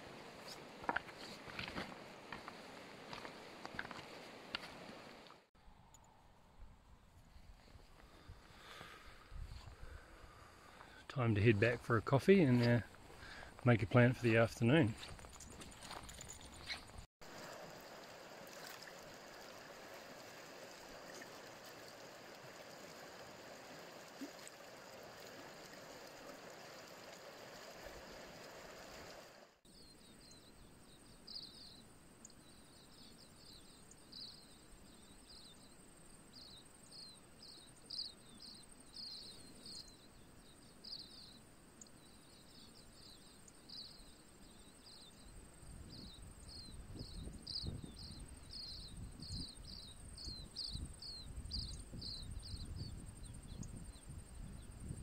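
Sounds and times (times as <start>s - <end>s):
insects chirping: 15.0s - 55.0s.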